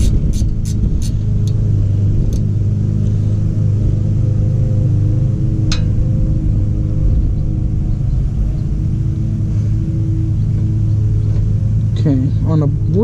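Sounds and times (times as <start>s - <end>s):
ratchet wrench clicking: 0.0s - 1.6s
steady low drone: 0.0s - 13.0s.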